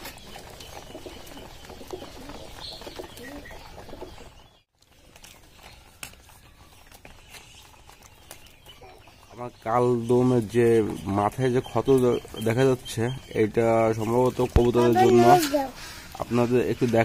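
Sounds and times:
pigeons cooing: 0:00.0 - 0:04.4, 0:08.6 - 0:16.8.

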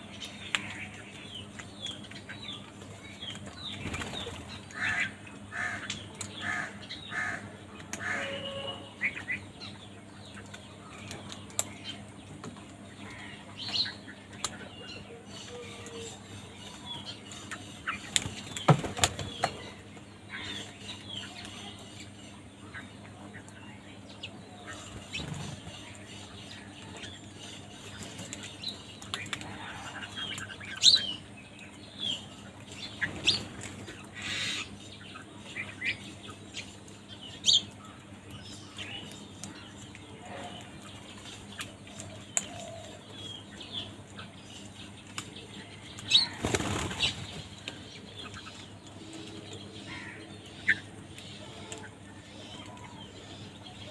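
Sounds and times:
beaks pecking concrete: 0:10.4 - 0:23.5, 0:24.1 - 0:53.9
crow wings flapping: 0:46.2 - 0:47.3.

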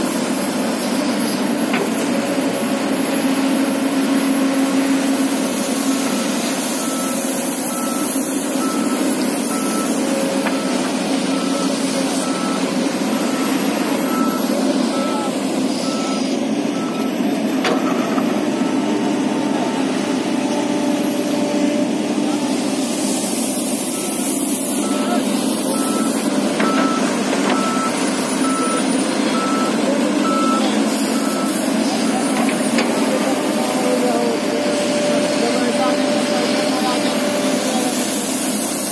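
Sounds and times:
excavator engine running: 0:00.0 - 0:38.9
warning alarm beeping: 0:06.1 - 0:18.9, 0:23.9 - 0:32.4.

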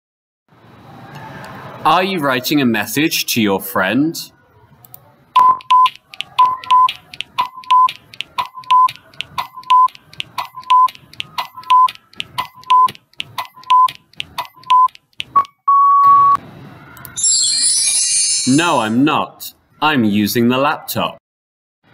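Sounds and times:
short double beeps: 0:05.4 - 0:09.9
sharp timer tick: 0:05.4 - 0:15.6.

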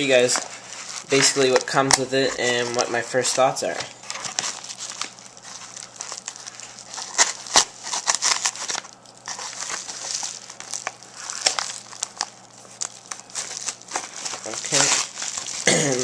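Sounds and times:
package crinkling and tearing: 0:00.0 - 0:16.0
knife cutting packaging: 0:04.1 - 0:16.0.

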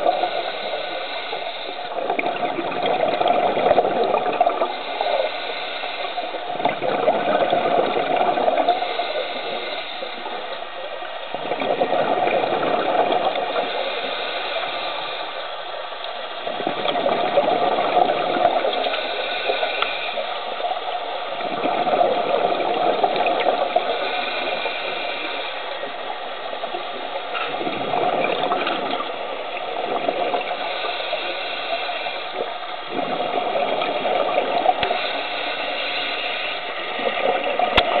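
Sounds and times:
bubbling exhaled air: 0:00.0 - 0:10.5, 0:11.3 - 0:15.4, 0:16.4 - 0:20.8, 0:21.4 - 0:38.0
steady watery hiss: 0:00.0 - 0:38.0.

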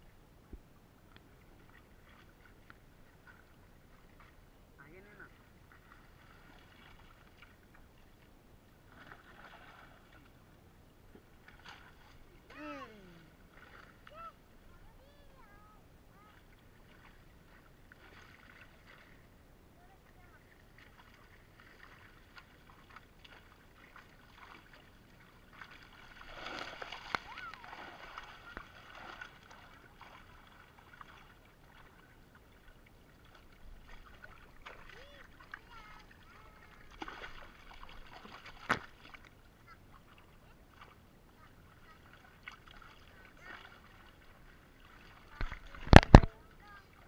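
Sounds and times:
water splashes and drips: 0:05.0 - 0:08.0, 0:08.9 - 0:10.4, 0:16.2 - 0:19.2, 0:20.1 - 0:47.0.

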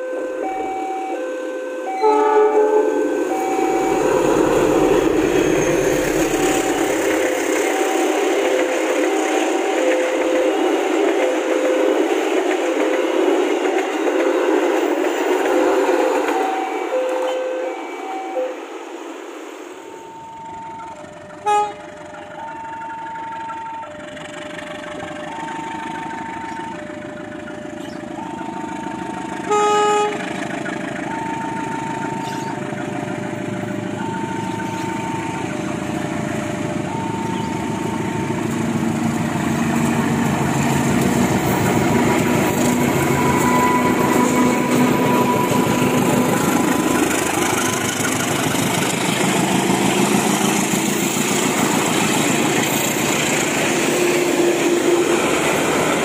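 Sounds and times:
locomotive horn blast: 0:00.0 - 0:11.9, 0:21.3 - 0:22.1, 0:29.4 - 0:30.4, 0:42.0 - 0:46.8
level crossing alarm two-tone: 0:00.0 - 0:14.8, 0:15.4 - 0:18.7, 0:20.0 - 0:38.8, 0:41.7 - 0:48.2
diesel locomotive engine: 0:00.0 - 0:56.0
rumble of passing train coaches: 0:00.0 - 0:56.0.

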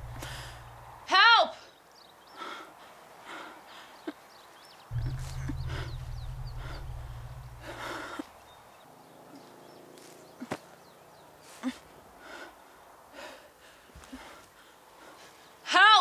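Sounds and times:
deep droning tone: 0:00.0 - 0:00.9, 0:04.9 - 0:08.2
faint high hum: 0:00.0 - 0:01.0, 0:04.9 - 0:08.2
short breathy noises: 0:00.0 - 0:01.0, 0:04.9 - 0:08.4.

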